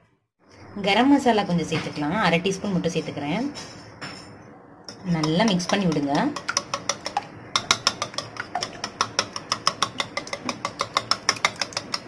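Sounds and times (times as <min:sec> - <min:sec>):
whisk clicking against bowl: 0:04.9 - 0:12.0.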